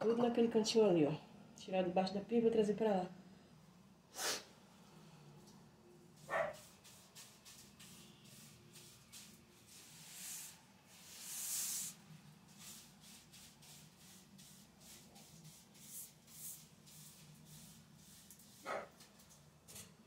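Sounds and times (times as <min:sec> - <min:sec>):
broom sweeping a floor: 0:06.1 - 0:19.4.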